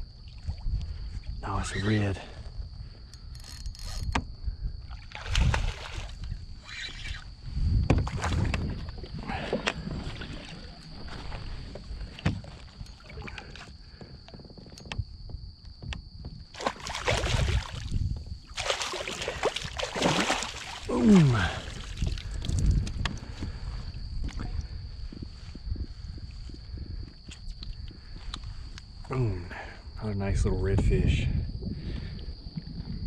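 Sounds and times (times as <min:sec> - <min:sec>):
water sloshing against hull: 0:00.0 - 0:29.1
fish splashing at water surface: 0:16.6 - 0:22.6.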